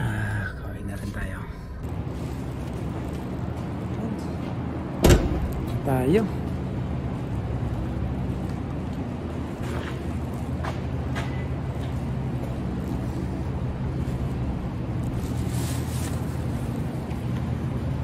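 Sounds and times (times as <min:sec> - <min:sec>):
low rumble of parking garage: 0:00.0 - 0:18.0.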